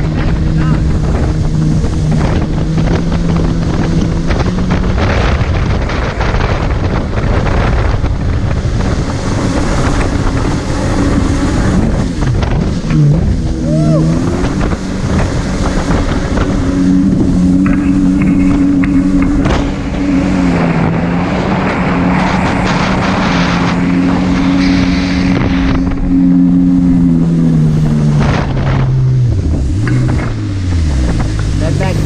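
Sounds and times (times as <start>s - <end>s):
jet ski engine running: 0.0s - 32.0s
rushing water: 0.0s - 32.0s
wind buffeting: 0.0s - 32.0s.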